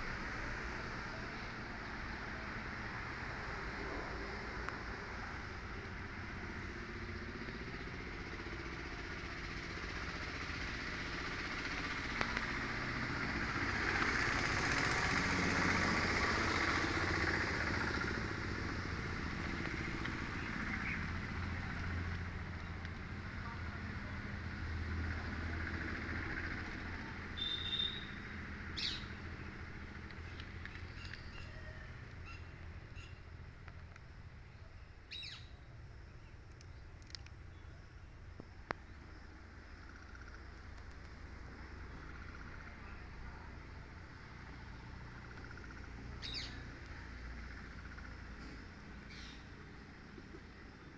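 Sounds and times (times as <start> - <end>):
vehicle engine and road noise: 0.0 - 50.9.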